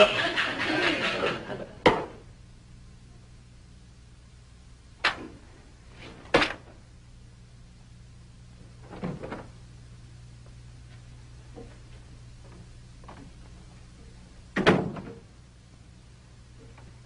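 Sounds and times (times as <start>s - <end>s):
faint steady hum: 0.0s - 17.0s
closet door opening: 8.8s - 9.6s.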